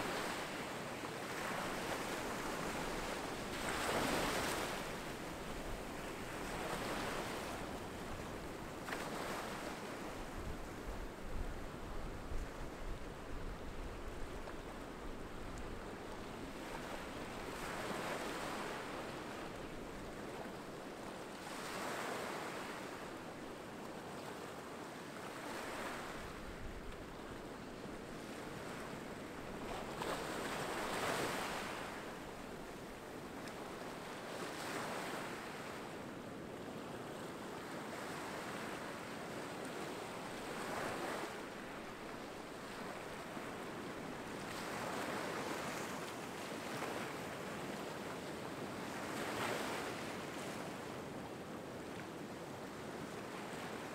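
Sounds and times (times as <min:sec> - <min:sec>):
small waves on rocky beach: 0:01.2 - 0:07.7, 0:08.8 - 0:10.2, 0:21.4 - 0:23.0, 0:27.9 - 0:35.8, 0:40.2 - 0:47.8.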